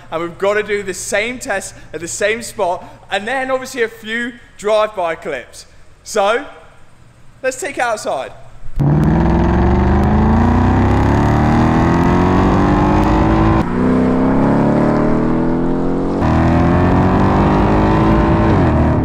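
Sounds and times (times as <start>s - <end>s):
car engine accelerating hard: 8.8s - 19.0s.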